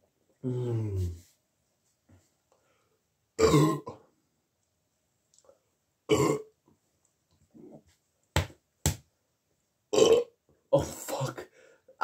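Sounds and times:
man burping: 3.4 - 4.1, 6.1 - 6.5, 9.9 - 11.4.

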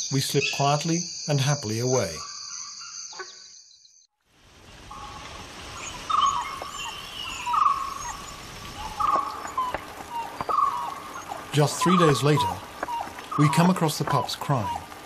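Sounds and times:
crickets trilling: 0.0 - 15.0
pup crying with whistles: 9.6 - 13.7.

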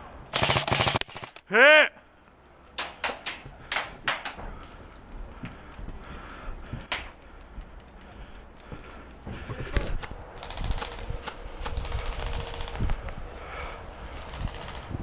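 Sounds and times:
airsoft rifle shots: 0.3 - 1.4.

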